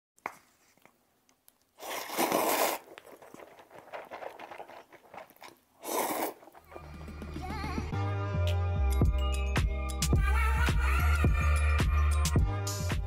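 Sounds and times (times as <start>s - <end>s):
person eating noodles: 0.7s - 7.1s
paper tearing: 1.8s - 4.7s.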